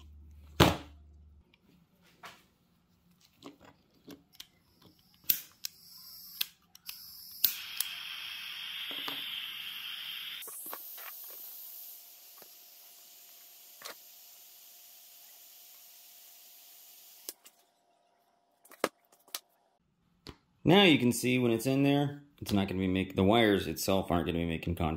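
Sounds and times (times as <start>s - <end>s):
soldering iron igniting: 5.0s - 14.7s
gas flame hissing: 5.1s - 14.0s.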